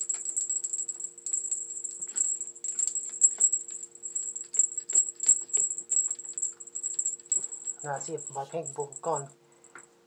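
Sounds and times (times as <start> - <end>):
cat toy jingling and rattling: 0.0 - 9.3.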